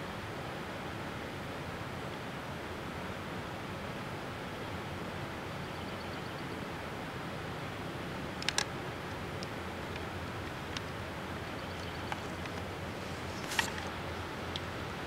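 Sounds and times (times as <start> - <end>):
outdoor background hiss: 0.0 - 15.0
sharp clicks: 8.4 - 8.7.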